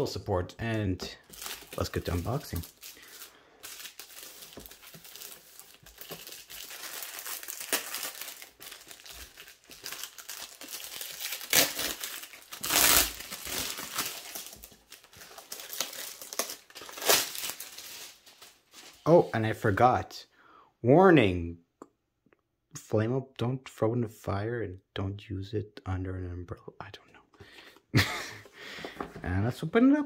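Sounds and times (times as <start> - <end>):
plastic shrink-wrap crinkling: 1.2 - 19.3.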